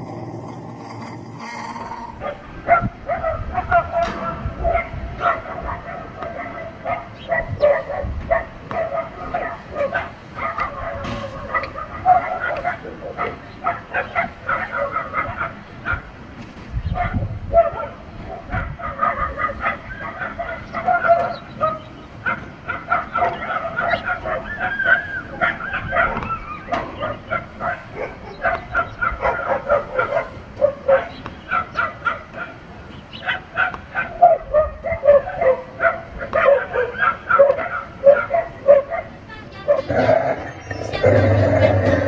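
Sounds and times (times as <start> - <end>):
dogs barking and yipping: 0.0 - 16.2, 16.8 - 42.0.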